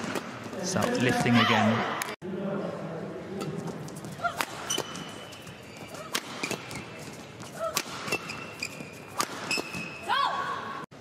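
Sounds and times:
shoes squeaking on court: 3.6s - 10.2s
racket hitting shuttlecock: 4.2s - 5.3s, 5.9s - 10.0s.

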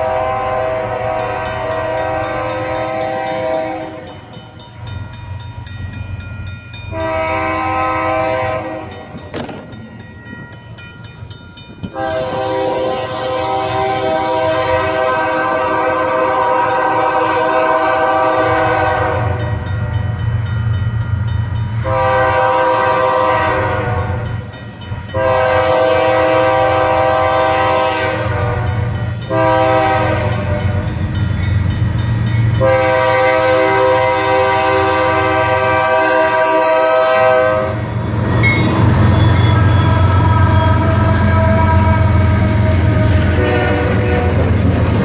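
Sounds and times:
locomotive air horn blasts: 0.0s - 4.1s, 6.9s - 9.1s, 11.9s - 19.7s, 21.8s - 24.4s, 25.1s - 30.9s, 32.6s - 44.6s
train rumbling: 0.0s - 45.0s.

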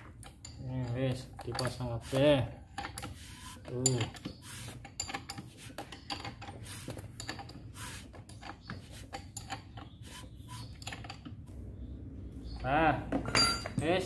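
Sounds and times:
metal hand tools clinking: 0.0s - 9.8s, 13.2s - 13.8s.

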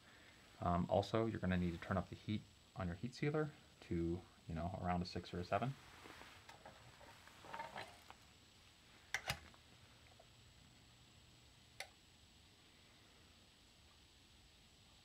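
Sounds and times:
faint low hum: 0.0s - 15.0s
heat sealer clicks: 9.1s - 9.5s.

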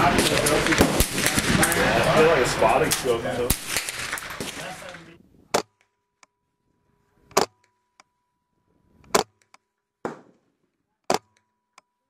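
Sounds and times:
sharp rifle shots: 0.0s - 1.9s, 3.5s - 4.8s.

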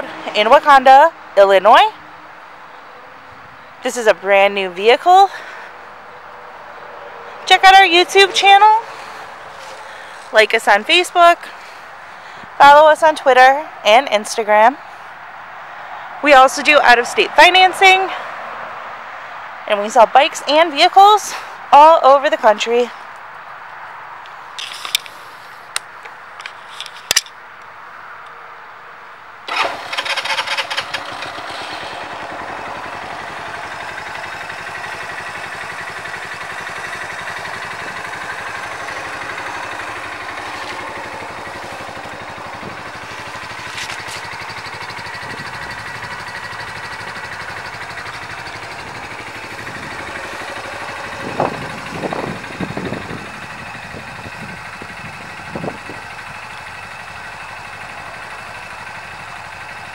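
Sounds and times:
atv engine starting and idling: 4.0s - 13.2s, 29.5s - 59.9s
engine throttle revs: 29.5s - 59.9s.

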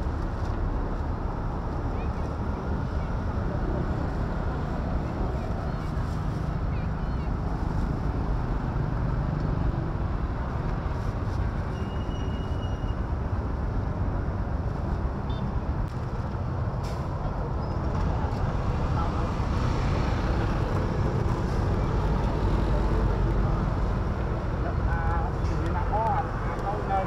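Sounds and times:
traffic noise: 0.0s - 27.0s
people talking: 24.6s - 27.0s.

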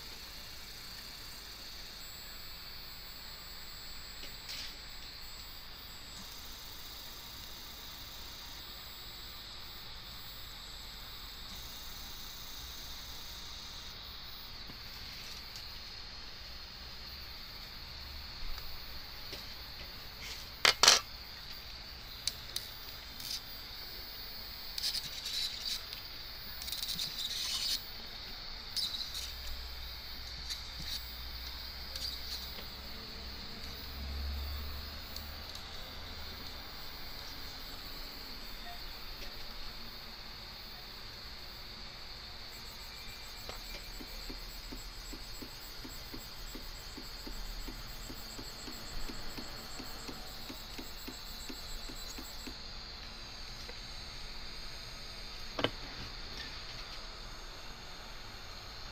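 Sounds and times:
stepper motor whining and chirping: 0.0s - 58.8s
stepper motor ticking: 42.8s - 52.6s.

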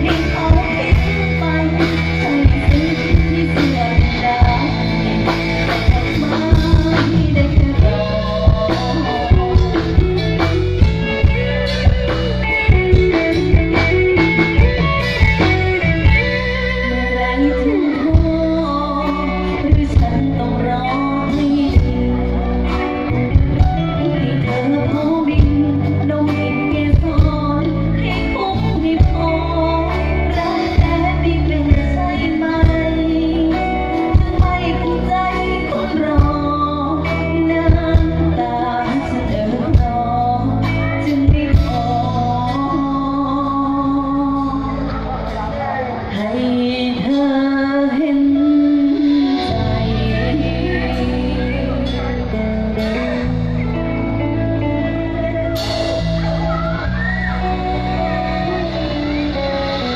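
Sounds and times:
drum-kit beat: 0.0s - 17.2s, 17.9s - 43.0s
bass: 0.0s - 59.9s
electric guitar: 0.0s - 59.9s
keyboard: 0.0s - 59.9s
person singing: 0.0s - 59.9s.

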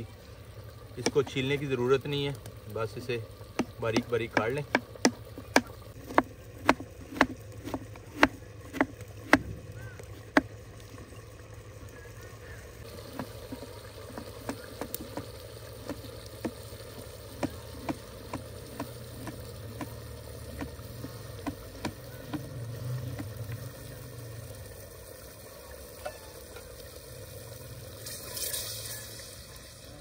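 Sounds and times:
knife chopping on cutting board: 3.6s - 9.5s.

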